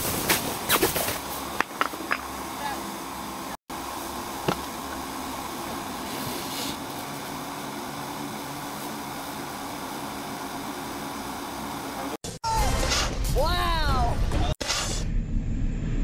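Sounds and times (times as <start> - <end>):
stone hitting inflated cover: 4.4 - 4.7.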